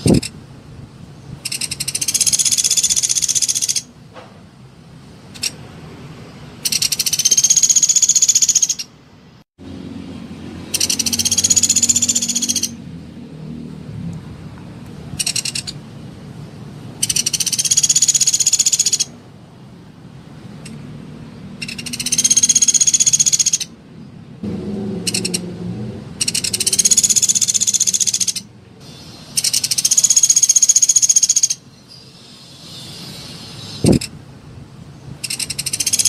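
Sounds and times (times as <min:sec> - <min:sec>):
woodpecker rapid trills: 0:01.4 - 0:03.9, 0:06.6 - 0:08.9, 0:10.6 - 0:12.8, 0:15.2 - 0:15.8, 0:17.0 - 0:19.1, 0:21.6 - 0:23.7, 0:25.0 - 0:25.4, 0:26.2 - 0:34.1, 0:35.2 - 0:36.0.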